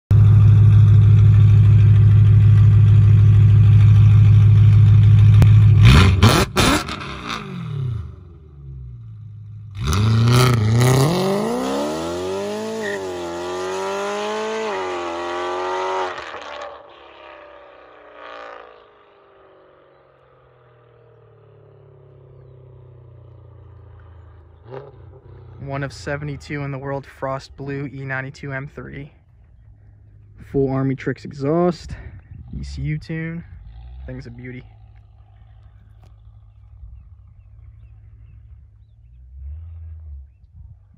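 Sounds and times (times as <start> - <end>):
car engine idling loudly: 0.1 - 6.0, 32.1 - 39.0
exhaust cracks: 0.1 - 13.2, 23.2 - 40.9
car accelerating hard: 3.6 - 8.5, 9.6 - 19.6.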